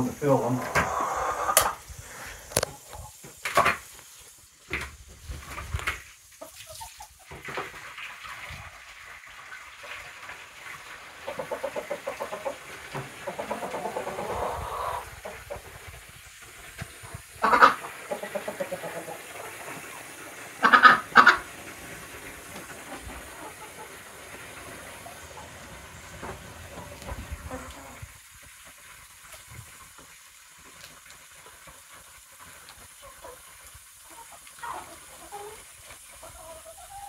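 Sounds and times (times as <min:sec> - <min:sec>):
hens clucking: 0:00.0 - 0:03.7, 0:11.1 - 0:28.2, 0:32.9 - 0:37.0
garden hose hissing: 0:00.0 - 0:37.0.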